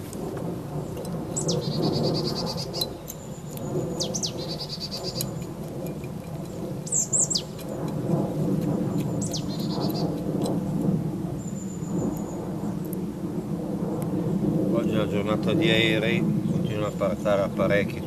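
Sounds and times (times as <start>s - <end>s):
airplane rumbling overhead: 0.0s - 18.0s
small bird singing: 0.8s - 8.0s, 8.7s - 10.5s, 11.3s - 12.9s, 15.7s - 18.0s.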